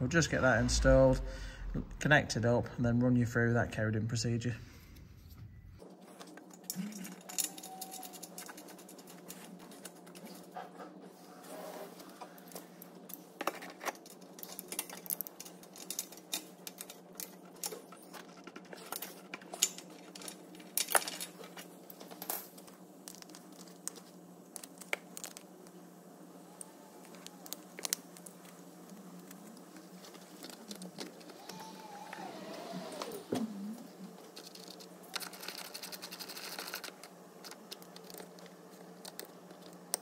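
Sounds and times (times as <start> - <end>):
steady low hum: 0.0 - 7.3, 32.2 - 40.0.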